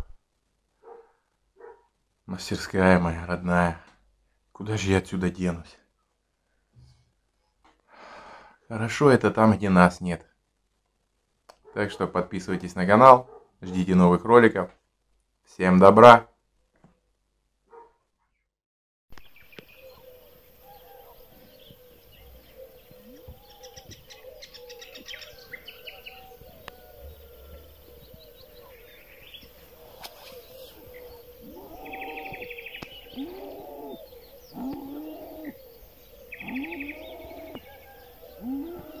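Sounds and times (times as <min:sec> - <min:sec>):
birds chirping and trilling: 0:19.1 - 0:39.0
loud repeated bird calls: 0:19.1 - 0:39.0.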